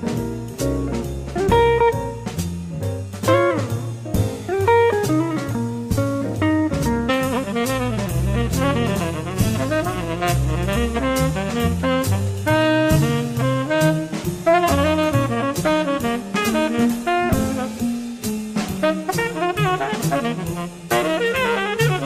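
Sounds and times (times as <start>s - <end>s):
bending guitar lead: 0.0s - 18.0s
bass: 0.0s - 22.0s
drum kit: 0.0s - 22.0s
saxophone and horns: 0.0s - 22.0s.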